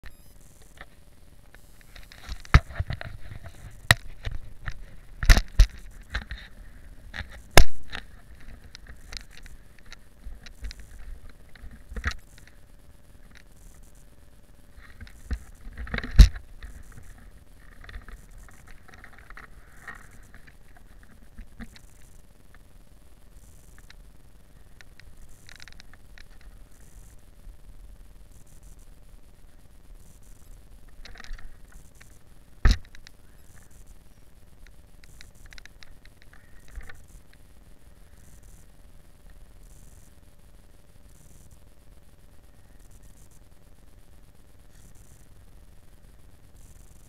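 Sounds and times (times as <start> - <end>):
camera knocks and scrapes: 1.9 - 9.5.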